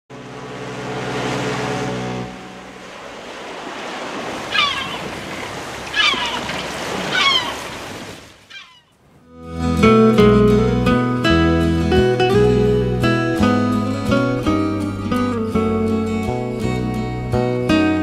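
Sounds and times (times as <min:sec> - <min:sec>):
low hum: 0:00.1 - 0:03.8
sea waves washing: 0:00.1 - 0:09.8
short cries sliding down: 0:04.4 - 0:08.9.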